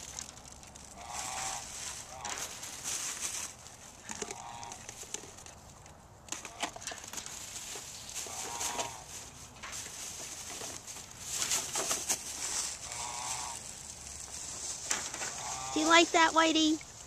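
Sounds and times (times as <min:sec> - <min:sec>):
mule chewing food: 0:03.5 - 0:11.5.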